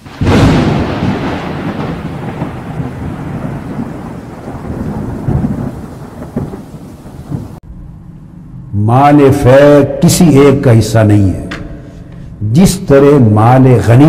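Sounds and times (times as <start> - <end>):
thunder rumbling: 0.0 - 7.9.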